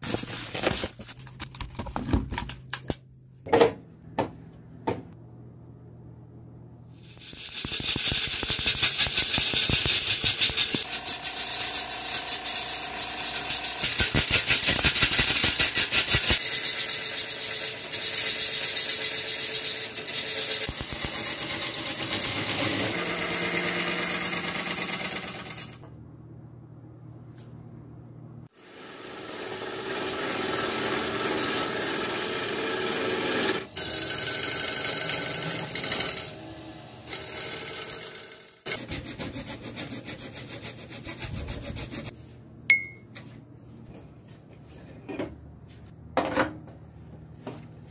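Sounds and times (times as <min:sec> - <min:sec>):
lathe gouge scraping wood: 0:29.1 - 0:36.3.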